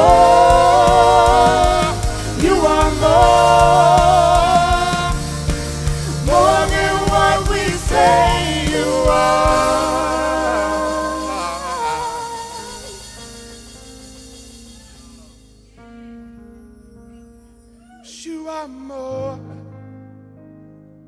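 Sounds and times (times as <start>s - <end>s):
singers with vibrato: 0.0s - 14.1s
drums: 0.0s - 15.4s
bass guitar: 0.0s - 15.6s
acoustic guitar: 0.0s - 16.4s
keyboard: 0.0s - 21.0s.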